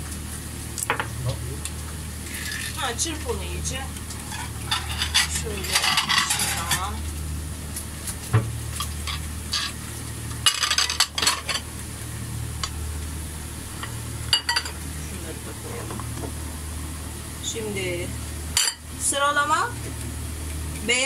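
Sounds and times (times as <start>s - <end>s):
fork beating eggs in a bowl: 4.2s - 6.8s
glass plate clinking down: 14.3s - 14.8s.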